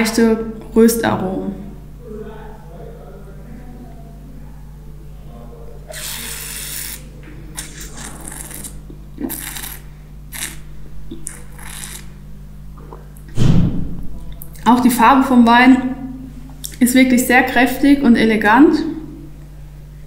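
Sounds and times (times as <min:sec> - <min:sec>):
low steady hum: 0:00.0 - 0:20.0
person slurping wine: 0:05.9 - 0:12.2.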